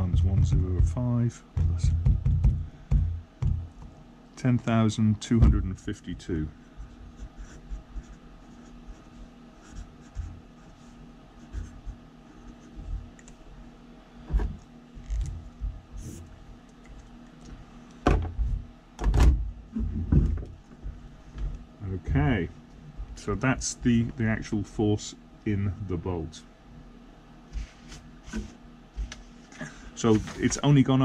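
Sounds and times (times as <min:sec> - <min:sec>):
dull knocks on desk: 0:01.6 - 0:03.9, 0:18.0 - 0:18.4
marker pen writing on paper: 0:06.8 - 0:13.1.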